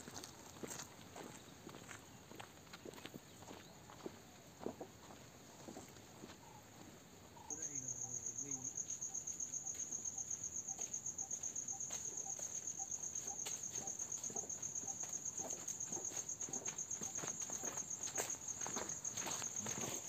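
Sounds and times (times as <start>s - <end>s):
insect trilling: 7.4s - 20.0s.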